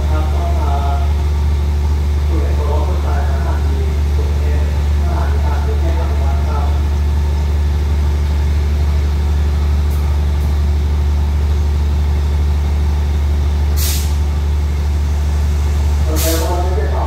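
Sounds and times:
diesel train engine idling: 0.0 - 17.0
short hiss: 13.8 - 14.2.

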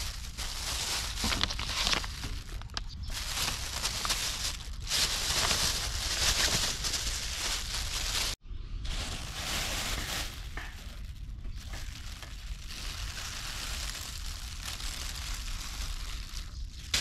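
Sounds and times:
water pouring into a bag: 0.0 - 8.0
plastic bag crinkling: 0.0 - 17.0.

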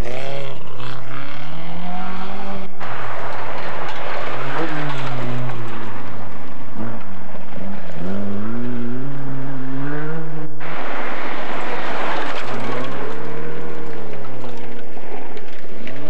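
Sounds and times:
rally car engine revving: 0.0 - 16.0
rushing noise: 2.7 - 9.6, 10.6 - 16.0.

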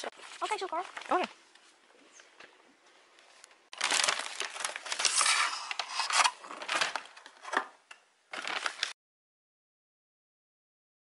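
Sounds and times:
paper wrapping rustling and crinkling: 0.0 - 1.8, 3.2 - 9.0.

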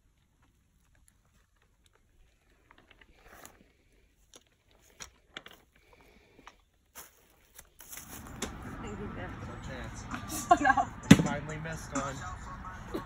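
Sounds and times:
faint crackles and clicks: 0.0 - 7.8.

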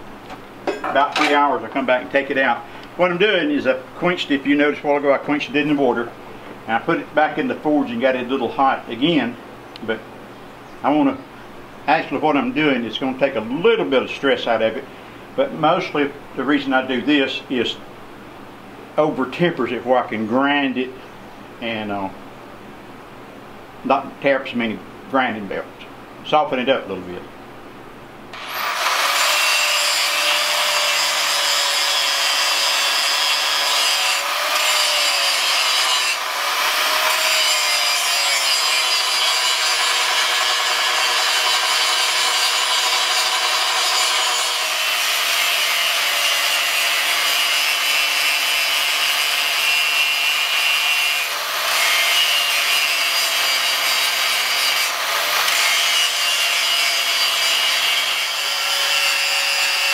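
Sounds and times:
angle grinder grinding steel: 28.4 - 59.9.

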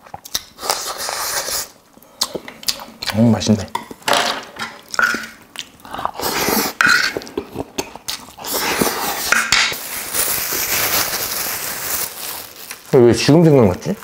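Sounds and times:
eating sounds: 0.0 - 4.0, 4.8 - 9.5
plastic bag crinkling: 8.4 - 14.0.

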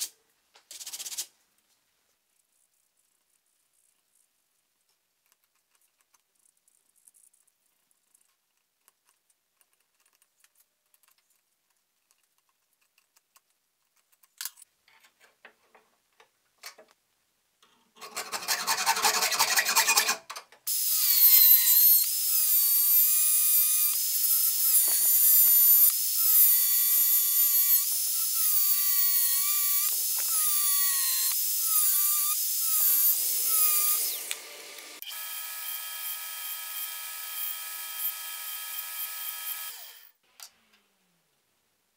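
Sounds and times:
angle grinder cutting steel: 18.2 - 40.2.

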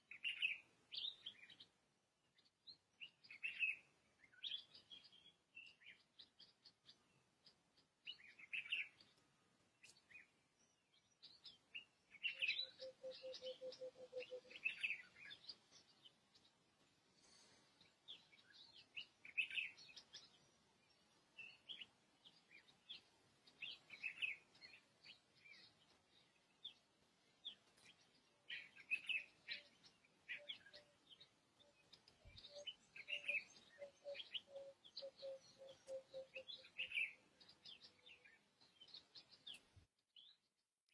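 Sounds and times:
birds chirping: 0.0 - 40.4.

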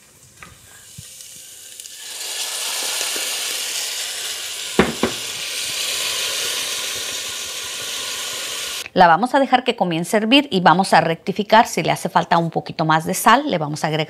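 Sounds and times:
salsa sizzling in a hot pan: 0.0 - 8.9.

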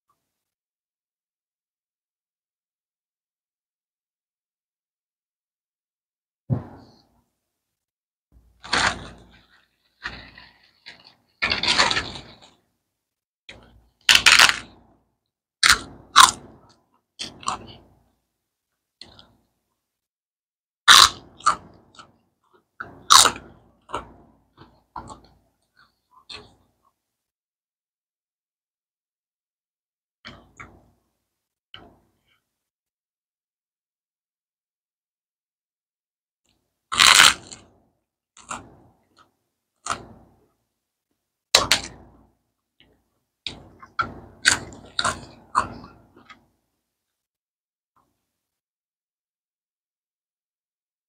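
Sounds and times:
cracker being crunched: 14.1 - 14.7, 36.9 - 37.6
cracker crunching when bitten: 14.1 - 14.8, 15.6 - 16.5, 20.9 - 21.8, 23.0 - 24.0, 36.9 - 37.7.

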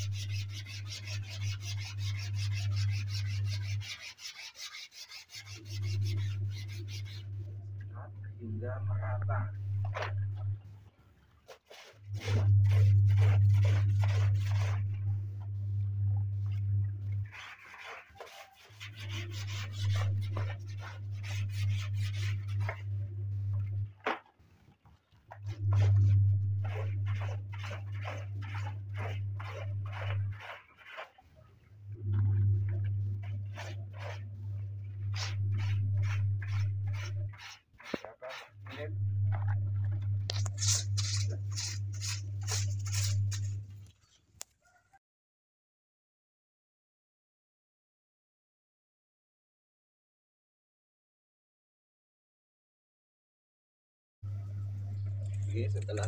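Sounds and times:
steady low hum: 0.0 - 3.9, 5.5 - 11.0, 12.0 - 17.5, 18.9 - 24.0, 25.4 - 30.7, 31.7 - 43.9, 54.2 - 56.0
brush scrubbing wet fabric: 0.0 - 7.8, 11.3 - 43.9, 54.3 - 56.0.

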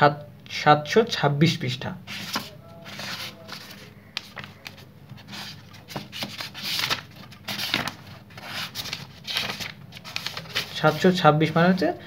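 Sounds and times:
book pages leafed through: 2.1 - 11.1.

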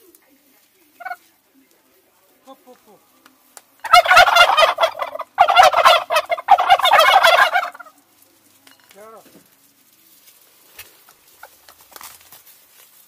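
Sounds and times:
turkeys gobbling: 0.5 - 2.6, 3.8 - 8.7, 9.5 - 12.1.

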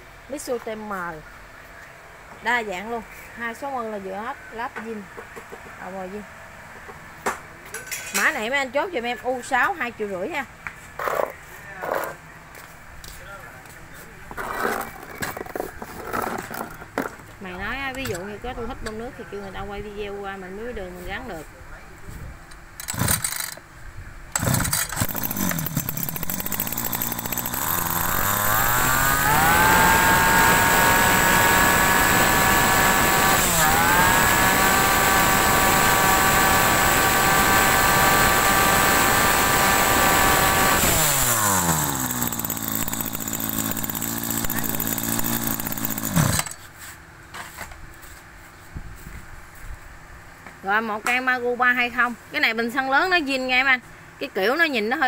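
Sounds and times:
brush cutter engine revving: 22.8 - 23.6, 24.3 - 46.7.

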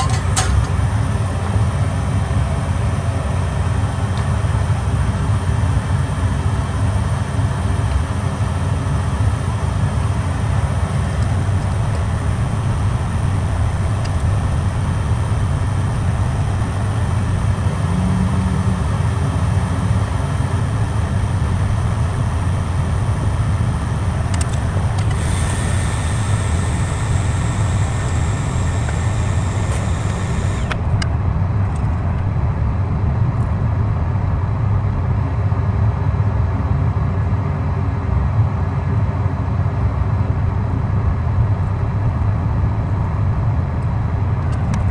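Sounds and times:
machine-like low rumble with hiss: 0.0 - 44.9
higher hiss: 24.8 - 30.8.

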